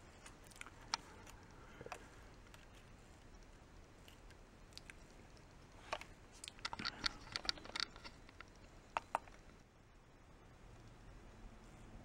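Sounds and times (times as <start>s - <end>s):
plastic clips clicking and rattling: 5.9s - 9.4s.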